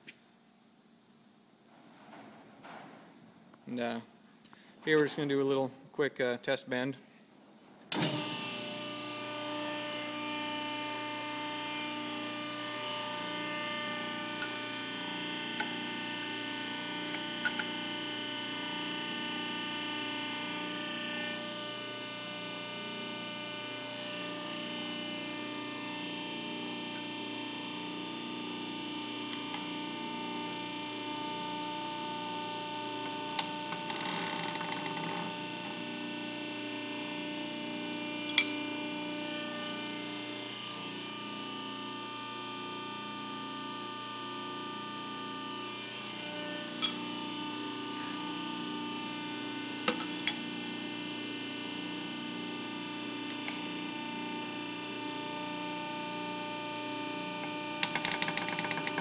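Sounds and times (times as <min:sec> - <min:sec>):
hydraulic power unit humming: 0:07.9 - 0:59.0.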